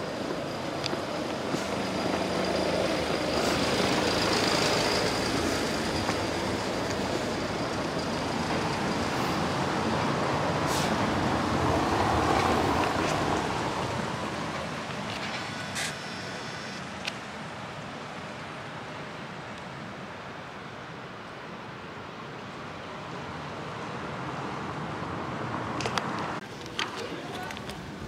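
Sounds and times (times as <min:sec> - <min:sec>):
passing road traffic: 0:00.0 - 0:28.0.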